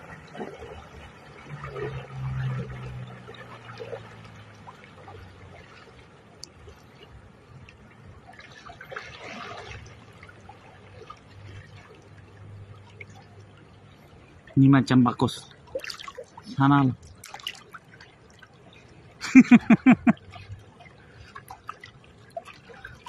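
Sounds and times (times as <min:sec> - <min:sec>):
water splashing around wading legs: 0:00.0 - 0:14.6, 0:15.2 - 0:23.0.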